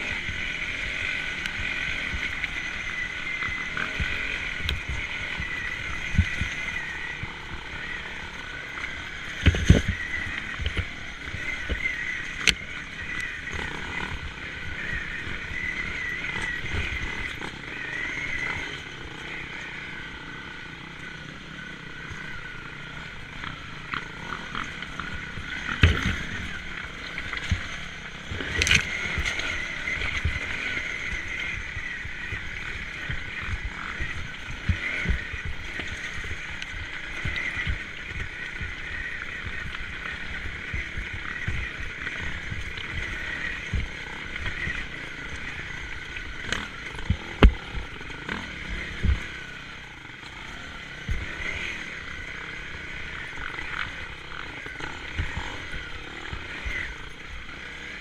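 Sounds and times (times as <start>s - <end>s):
motorcycle engine at low revs: 0.0s - 58.0s.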